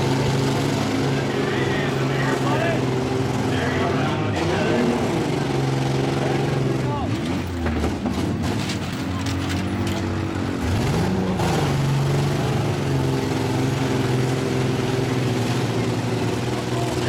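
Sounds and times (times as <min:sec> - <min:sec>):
engines revving: 0:00.0 - 0:17.0
metal knocks and clatters: 0:07.2 - 0:10.3.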